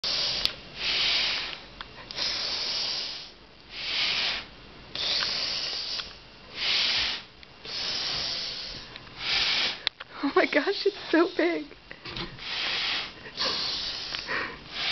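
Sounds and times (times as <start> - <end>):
man breathing hard through nose: 0.0 - 9.9, 11.9 - 14.9.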